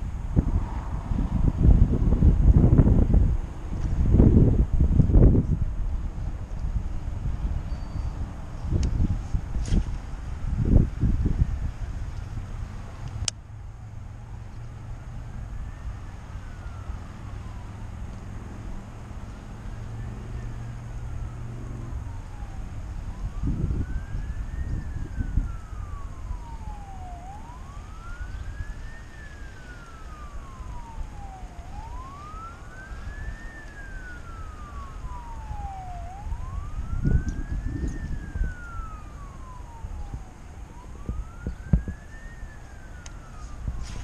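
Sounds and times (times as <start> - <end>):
low traffic rumble: 0.0 - 44.0
siren wailing: 13.7 - 44.0.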